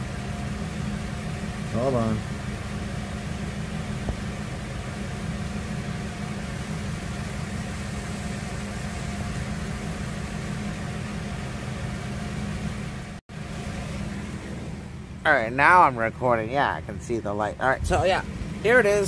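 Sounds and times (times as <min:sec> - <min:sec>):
generator engine humming: 0:00.0 - 0:19.0.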